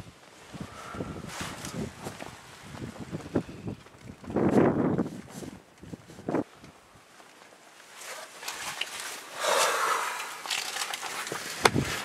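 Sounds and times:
fabric and gear rustling: 7.1 - 12.0.

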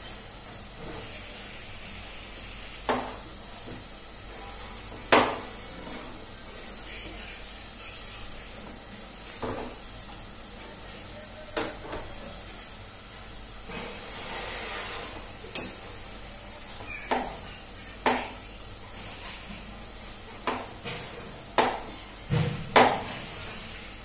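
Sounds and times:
onions sizzling in oil: 0.0 - 24.0.

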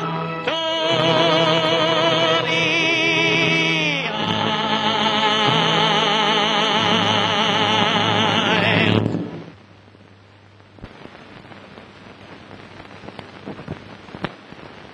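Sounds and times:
music with singing voices: 0.0 - 9.5
old film soundtrack hiss: 0.0 - 14.9
clicks and pops: 12.8 - 14.5.

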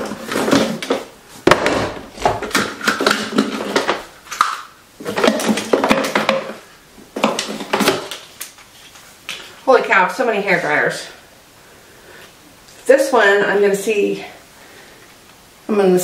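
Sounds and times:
plastic hair tools clattering: 0.0 - 6.6, 7.2 - 8.6.

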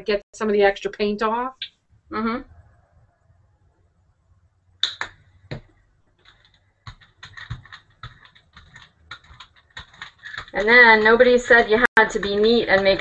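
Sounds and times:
sharp clicks: 4.8 - 5.2.

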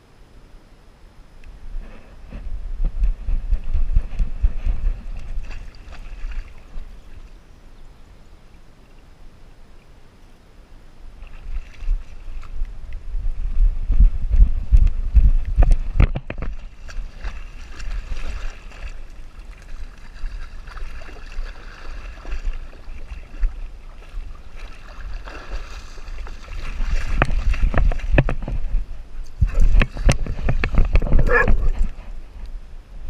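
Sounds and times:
water sloshing and gurgling: 1.5 - 10.0, 11.0 - 32.7
rubbing and bumps on camera: 1.8 - 6.0, 13.5 - 17.9, 26.7 - 32.4.

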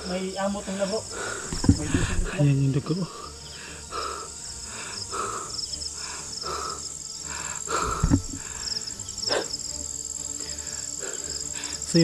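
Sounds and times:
crickets calling: 0.0 - 12.0
low thump: 1.5 - 2.4.

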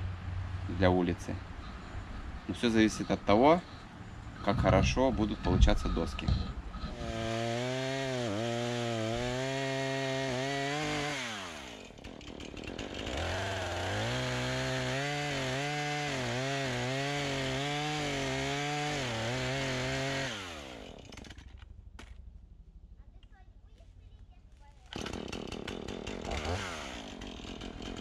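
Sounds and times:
chainsaw cutting log: 5.6 - 22.1, 24.8 - 28.0.

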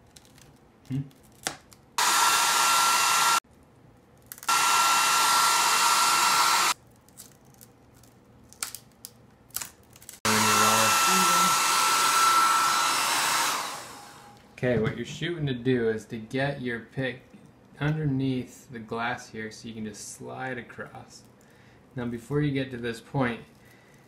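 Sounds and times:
blow dryer blowing air: 2.0 - 3.4, 4.5 - 6.8, 10.2 - 14.4.

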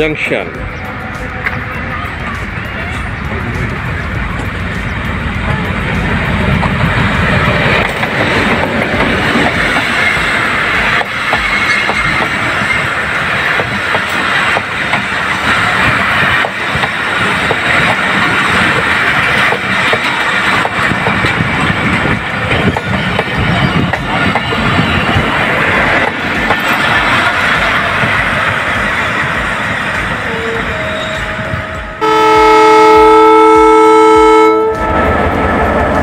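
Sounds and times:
locomotive engine rumbling: 0.0 - 36.0
train wheels clattering over rail joints: 6.4 - 30.2.

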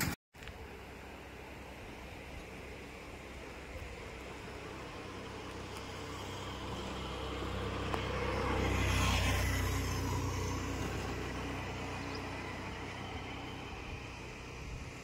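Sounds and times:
vehicle driving past: 4.7 - 15.0.

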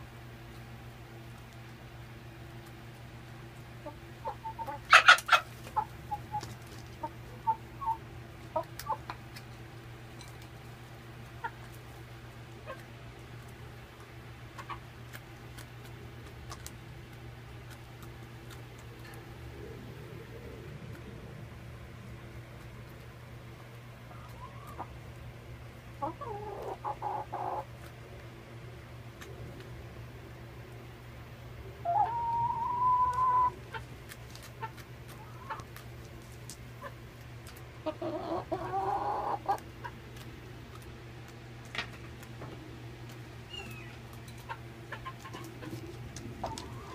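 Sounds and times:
steady low hum: 0.0 - 46.9
hens pecking ice: 0.5 - 28.4, 31.9 - 46.9
hens calling: 3.8 - 9.3, 23.8 - 25.1, 25.9 - 27.9, 31.8 - 35.8, 36.8 - 40.2, 43.2 - 46.9.

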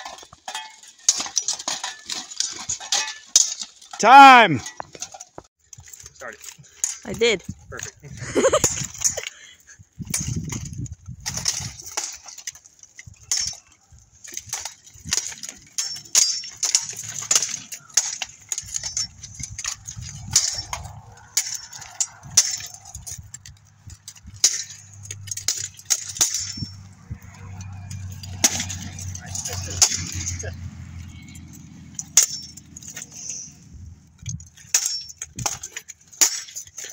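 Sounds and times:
swords clashing on armour: 0.0 - 5.2, 11.3 - 30.4, 31.3 - 33.4, 34.3 - 36.9
armour plates clanking: 0.0 - 36.9.

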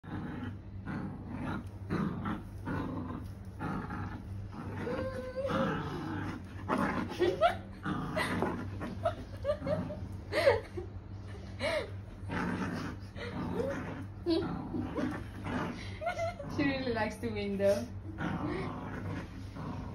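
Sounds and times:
small dog growling: 0.0 - 10.4, 12.1 - 16.9, 17.9 - 19.9.

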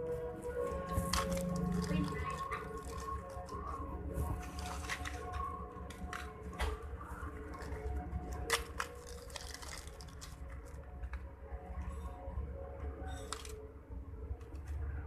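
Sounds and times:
plastic bags crinkling: 0.7 - 6.4, 7.3 - 10.9
small clicks and crackles: 0.8 - 12.0, 13.0 - 13.6.

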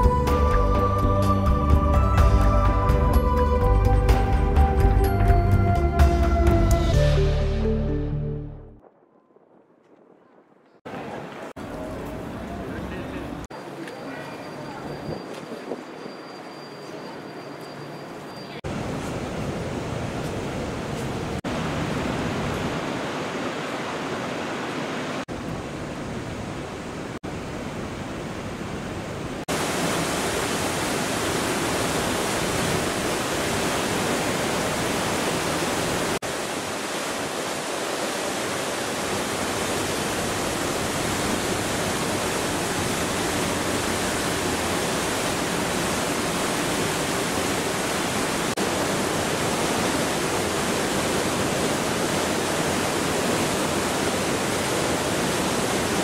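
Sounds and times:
steady rushing wind: 18.6 - 56.0.

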